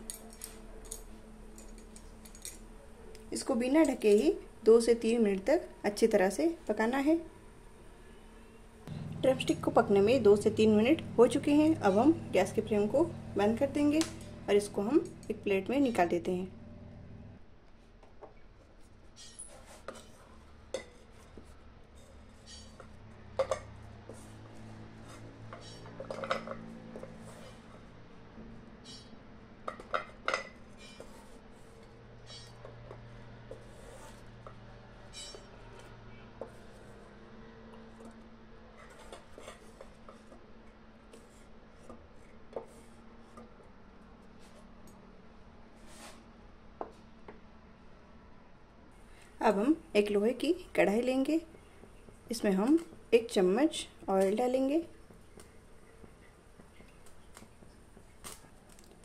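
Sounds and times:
faint low hum: 0:00.0 - 0:17.8
spoon clinking and scraping a pan: 0:25.6 - 0:26.6, 0:35.2 - 0:35.5
wooden spatula scraping a pan: 0:27.0 - 0:27.9, 0:30.7 - 0:34.4, 0:45.8 - 0:46.2.

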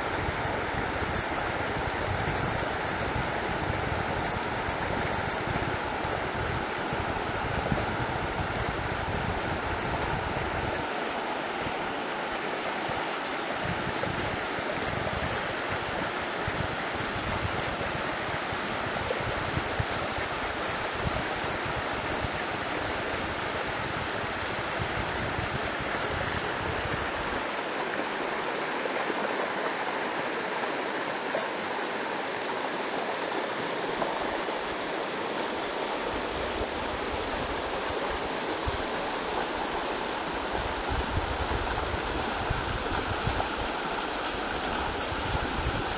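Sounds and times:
wind buffeting microphone: 0:00.0 - 0:10.9, 0:12.8 - 0:27.6, 0:36.1 - 0:45.9
river flowing over riffles: 0:00.0 - 0:45.9.

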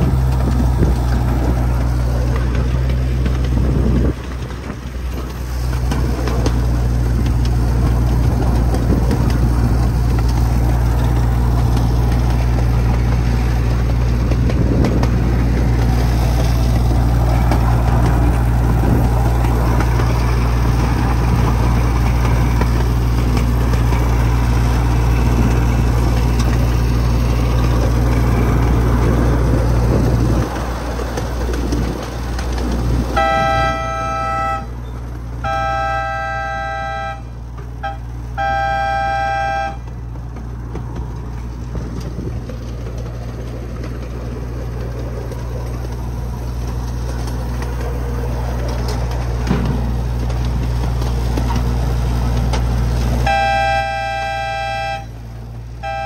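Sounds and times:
miniature train rolling hum: 0:00.0 - 0:56.0
train horn blasts: 0:33.1 - 0:34.8, 0:35.4 - 0:39.9, 0:53.2 - 0:55.2, 0:55.8 - 0:56.0.

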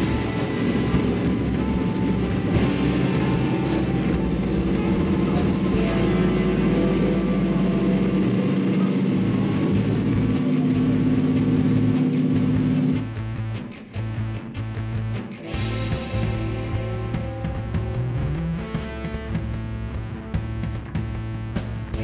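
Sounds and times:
train engine humming: 0:00.0 - 0:13.7.

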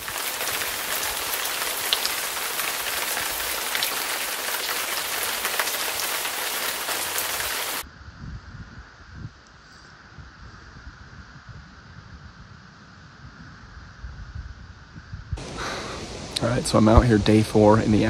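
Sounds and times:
raindrops ticking: 0:00.0 - 0:07.8, 0:15.4 - 0:17.4
steady rain hiss: 0:00.0 - 0:07.8, 0:15.4 - 0:18.0.

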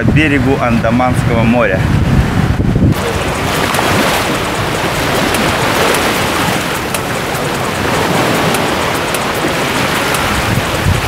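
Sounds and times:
small waves breaking on beach: 0:02.9 - 0:11.0.

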